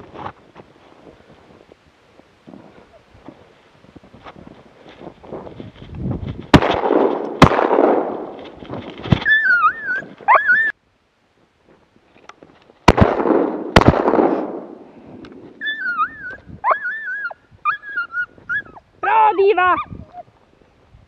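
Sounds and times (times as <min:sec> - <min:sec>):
shotgun shots: 0:06.5 - 0:08.5, 0:12.8 - 0:14.9
dog whining: 0:09.2 - 0:10.7, 0:15.6 - 0:18.8.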